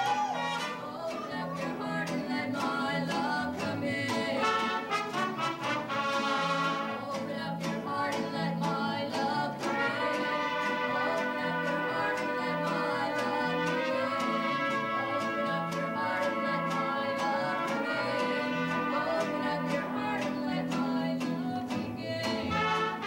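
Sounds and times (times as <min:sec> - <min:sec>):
mariachi band playing: 0:00.0 - 0:23.0
women singing: 0:00.0 - 0:23.0.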